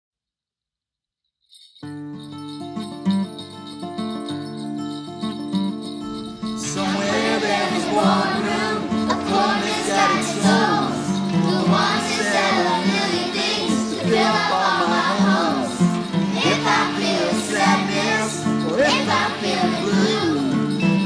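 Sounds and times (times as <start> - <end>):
instrumental accompaniment: 1.8 - 21.0
man and children singing: 6.6 - 20.7.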